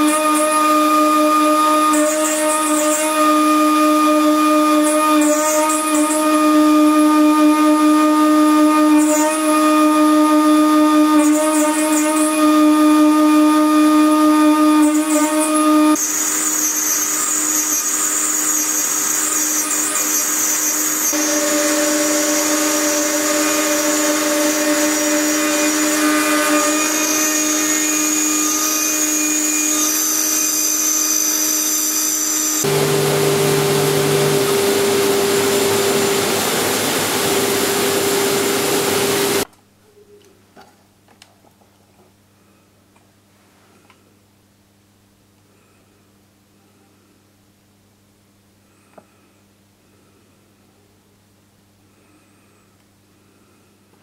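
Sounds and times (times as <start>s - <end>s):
router spindle whining while cutting: 0.0s - 39.5s
vacuum cleaner humming: 0.0s - 39.5s.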